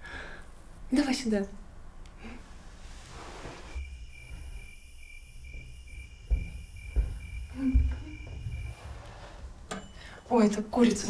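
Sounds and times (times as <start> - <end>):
crickets chirping: 2.2 - 11.0
high insect trill: 3.7 - 11.0
low thumps: 3.8 - 10.0.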